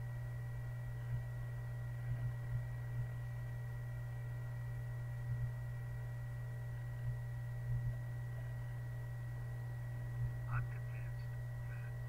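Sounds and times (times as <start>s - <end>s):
low electrical hum: 0.0s - 12.0s
thin high whine: 0.0s - 12.0s.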